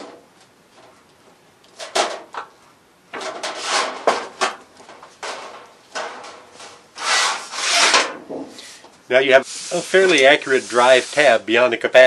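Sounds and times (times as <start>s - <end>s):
sheet metal scraping: 3.2s - 4.6s, 5.2s - 8.8s.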